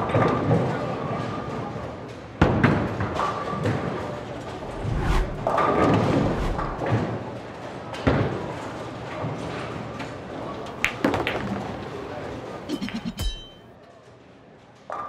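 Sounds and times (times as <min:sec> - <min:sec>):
low rumble: 0:04.6 - 0:06.9
bowling balls and pins thudding: 0:10.8 - 0:12.2.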